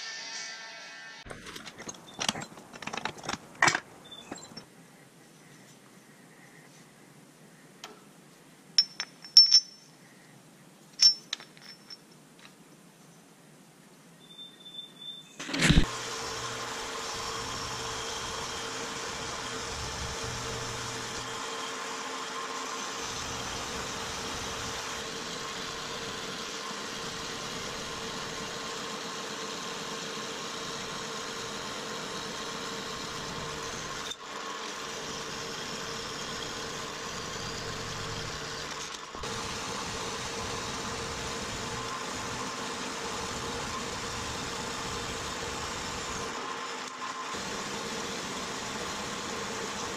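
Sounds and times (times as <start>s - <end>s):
bandsaw cutting metal: 15.5s - 49.9s.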